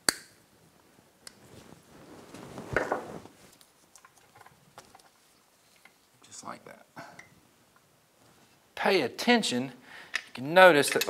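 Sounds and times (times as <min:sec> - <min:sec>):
gloved hands rustling and scraping: 0:00.8 - 0:06.2.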